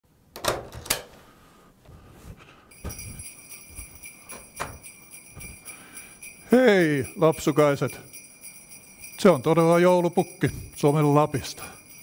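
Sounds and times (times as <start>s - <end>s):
small bells jingling: 2.7s - 12.0s
door opening: 4.3s - 4.8s.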